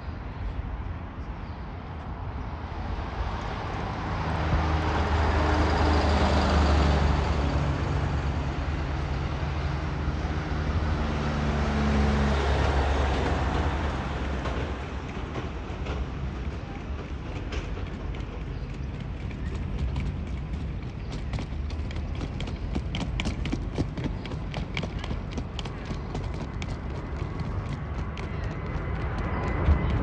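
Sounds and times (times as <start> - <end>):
jet engines roaring at take-off: 25.1 - 30.0.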